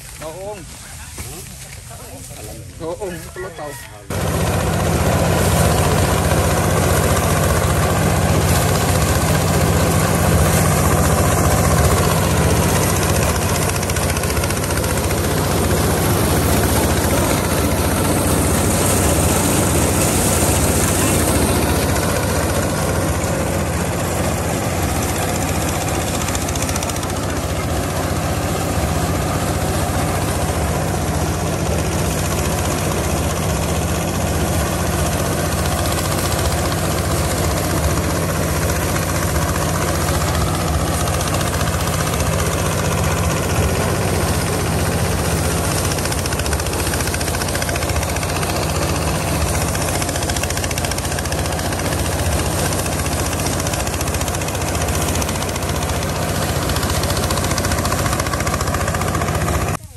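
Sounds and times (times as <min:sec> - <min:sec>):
rice straw rushing through thresher: 0:00.0 - 0:59.9
thresher engine humming: 0:00.0 - 0:59.9.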